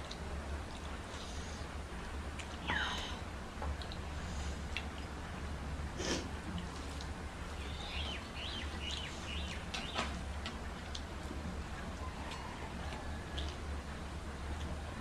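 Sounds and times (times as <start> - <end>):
chewing and lip smacks: 0.0 - 1.2, 2.0 - 2.7, 3.7 - 4.1, 4.7 - 5.4, 6.5 - 13.7
steady low hum: 0.0 - 15.0
small bird chirping: 7.6 - 10.1.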